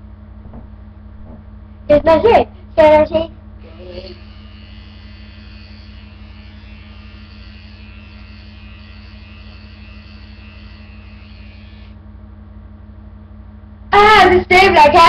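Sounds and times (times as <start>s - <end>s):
electric shaver buzzing: 3.6s - 12.0s.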